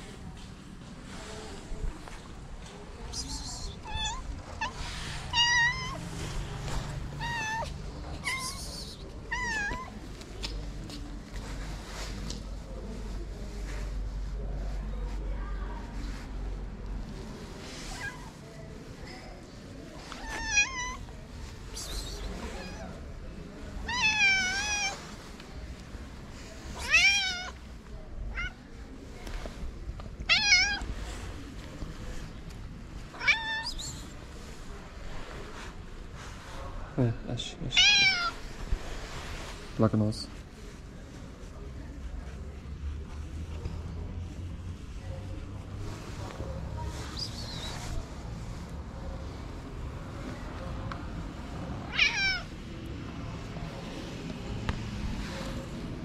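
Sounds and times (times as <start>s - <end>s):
cat meowing: 3.6s - 6.0s, 7.1s - 8.7s, 9.3s - 10.0s, 20.1s - 21.1s, 22.4s - 23.0s, 23.8s - 25.1s, 26.8s - 27.6s, 28.3s - 28.6s, 30.2s - 30.9s, 33.1s - 33.9s, 37.8s - 38.4s, 51.8s - 52.6s.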